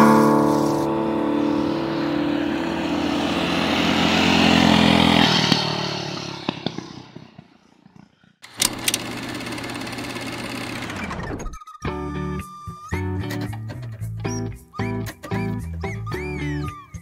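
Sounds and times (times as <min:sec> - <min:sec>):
mini bike engine passing by: 0:00.0 - 0:07.8, 0:08.6 - 0:11.3.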